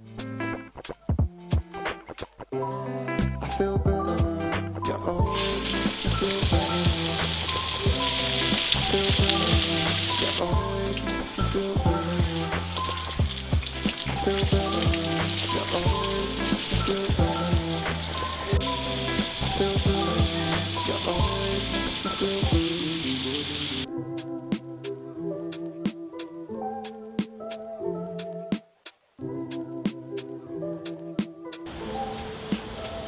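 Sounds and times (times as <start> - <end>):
background music with steady beat: 0.0 - 33.0
shower water spray hissing: 5.3 - 23.9.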